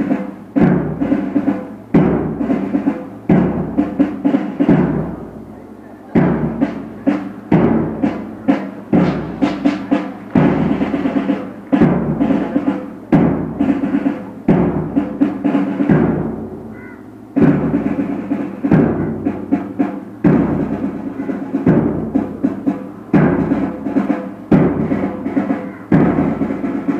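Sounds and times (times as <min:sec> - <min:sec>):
drum beats in steady rhythm: 0:00.0 - 0:26.9.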